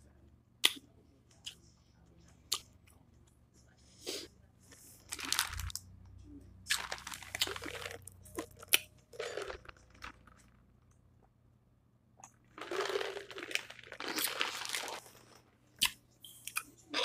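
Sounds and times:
chewing and crunching food: 0:04.7 - 0:11.0, 0:12.2 - 0:17.0.

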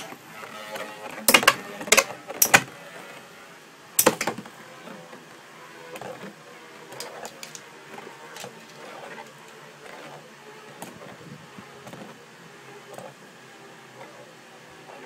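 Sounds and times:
spinning tops whirring: 0:06.0 - 0:12.2.

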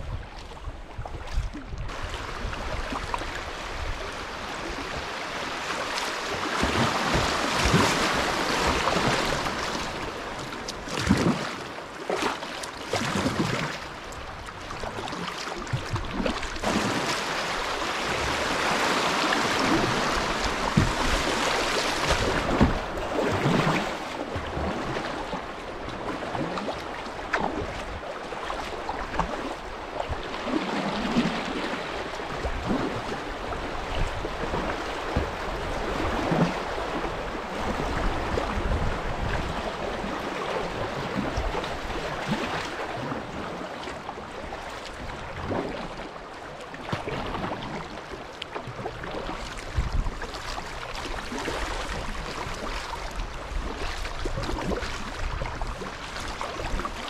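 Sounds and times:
kayak paddles splashing: 0:00.0 - 0:57.0
river water rushing over riffles: 0:01.9 - 0:44.2.

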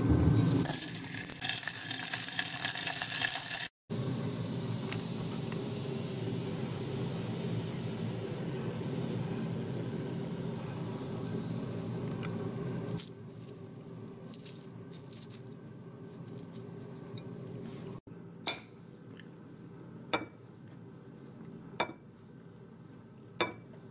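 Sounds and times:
nut shells clicking and crackling: 0:14.3 - 0:15.6.

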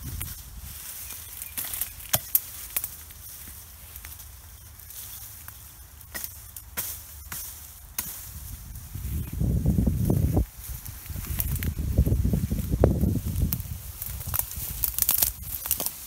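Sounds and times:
branches cracking under hatchet: 0:00.0 - 0:04.3, 0:04.9 - 0:08.6, 0:10.8 - 0:11.8, 0:13.1 - 0:16.0
twigs and leaves rustling: 0:00.0 - 0:16.0.

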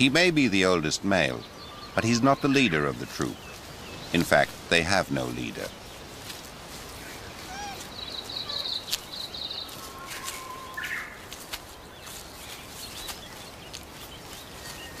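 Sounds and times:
high bird trill: 0:00.0 - 0:06.0, 0:06.9 - 0:11.3
birds calling: 0:00.0 - 0:15.0.

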